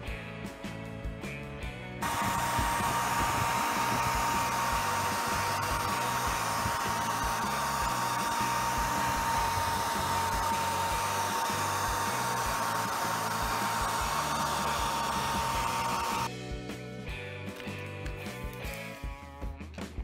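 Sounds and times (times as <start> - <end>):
small electric motor whining: 2.0 - 16.3.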